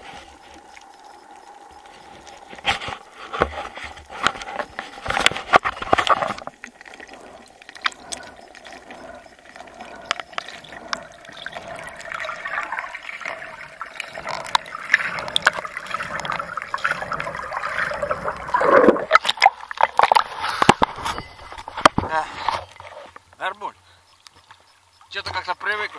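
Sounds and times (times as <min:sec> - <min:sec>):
water splashing: 0:00.0 - 0:23.2
underwater clicks: 0:00.6 - 0:22.1
air bubbles gurgling underwater: 0:05.1 - 0:21.0.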